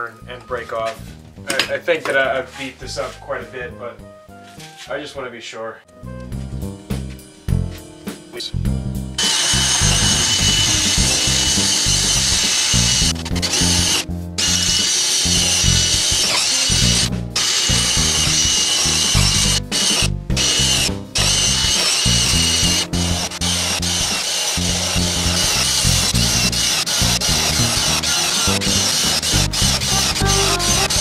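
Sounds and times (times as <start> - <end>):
background music: 0.0 - 31.0
cordless drill boring into wood: 9.2 - 31.0.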